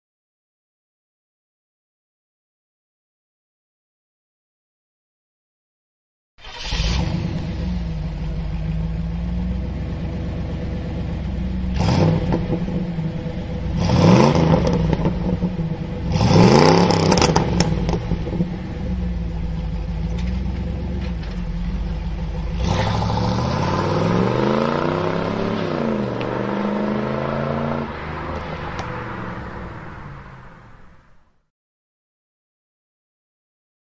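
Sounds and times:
car accelerating away: 0:06.4 - 0:31.0
car engine idling and revving: 0:06.4 - 0:31.2.

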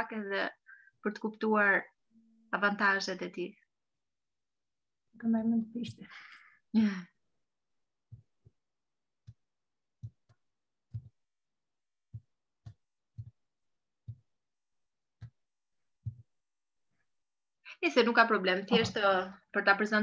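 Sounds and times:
soft dull thumps: 0:08.0 - 0:08.6, 0:09.2 - 0:11.3, 0:12.0 - 0:14.4, 0:15.2 - 0:16.4.

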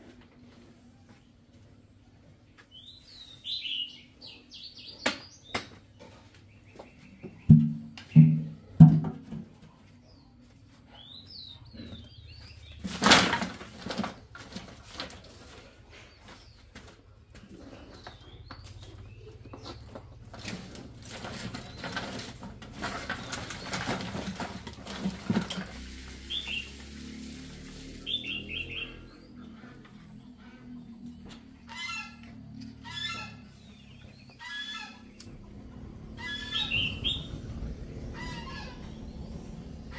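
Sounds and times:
small birds chirping: 0:00.4 - 0:08.4, 0:09.8 - 0:13.0, 0:15.3 - 0:24.4, 0:26.2 - 0:26.8, 0:27.9 - 0:39.9
tapping and rustling of sticks: 0:12.8 - 0:25.9.

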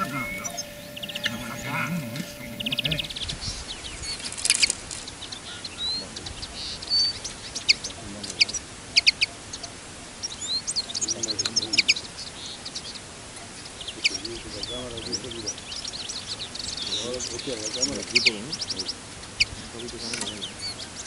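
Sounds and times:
whistled bird notes: 0:00.0 - 0:04.2
songbirds chirping: 0:00.0 - 0:21.0.

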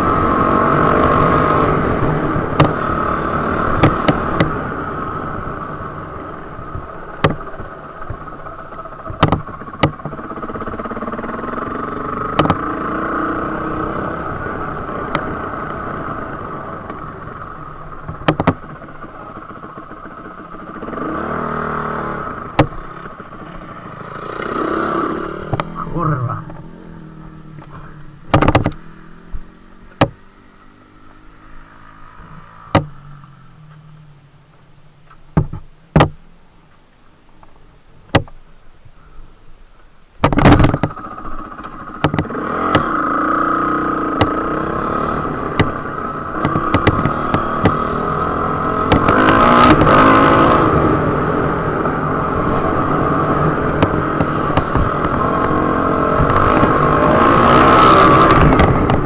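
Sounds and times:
dirt bike engine: 0:00.0 - 0:59.0
sharp knocks and clicks: 0:02.6 - 0:02.8, 0:03.8 - 0:04.5, 0:07.2 - 0:07.4, 0:09.0 - 0:10.3, 0:12.3 - 0:12.6, 0:18.0 - 0:18.9, 0:22.5 - 0:23.2, 0:25.4 - 0:25.7, 0:28.3 - 0:28.8, 0:29.9 - 0:30.2, 0:32.7 - 0:33.0, 0:35.0 - 0:36.2, 0:38.1 - 0:38.4, 0:40.2 - 0:41.0, 0:41.6 - 0:42.9, 0:44.2 - 0:44.4, 0:45.5 - 0:45.8, 0:46.4 - 0:47.9, 0:48.9 - 0:49.9, 0:53.8 - 0:55.2.

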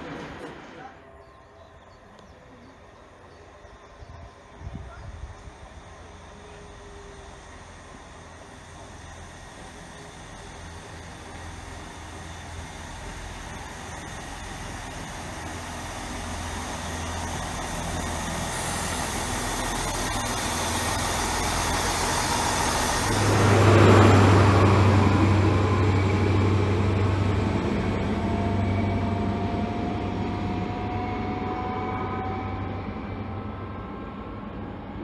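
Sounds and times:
diesel train engines passing: 0:00.0 - 0:35.0
train rising whine: 0:00.0 - 0:35.0.

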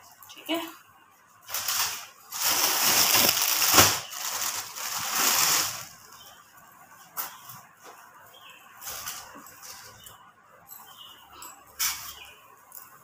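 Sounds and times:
cloth rustling and crinkling: 0:01.4 - 0:06.2
sharp crackle: 0:01.5 - 0:06.0.

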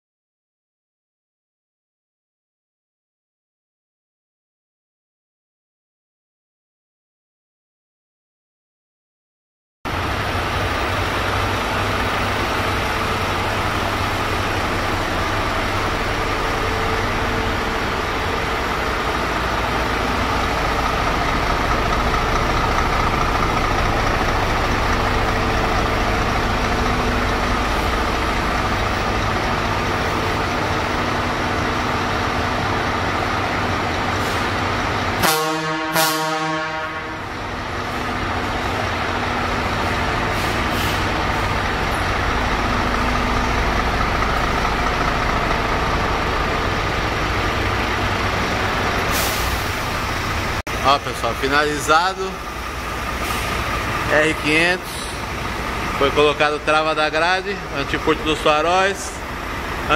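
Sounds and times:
diesel engine idling: 0:09.9 - 0:59.9
air horn blasts: 0:35.2 - 0:37.4.

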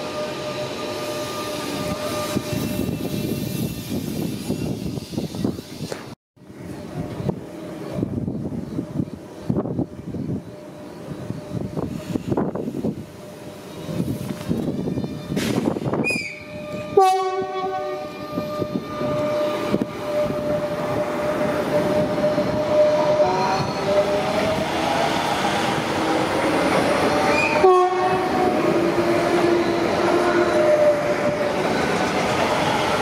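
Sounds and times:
train wheels rolling on rails: 0:00.0 - 0:33.0
train horn blast: 0:16.1 - 0:23.8, 0:27.3 - 0:28.8.

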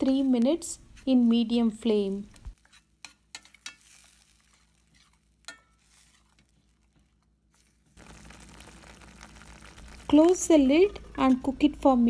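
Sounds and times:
spoon stirring chutney in a pan: 0:02.6 - 0:10.0.

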